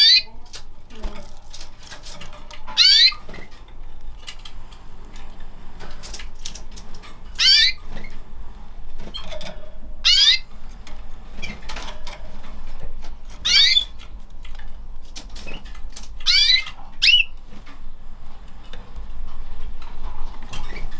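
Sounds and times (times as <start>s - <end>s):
canaries chirping: 0.0s - 4.5s, 6.0s - 8.3s, 9.0s - 17.7s
birds moving in wire cage: 0.0s - 20.9s.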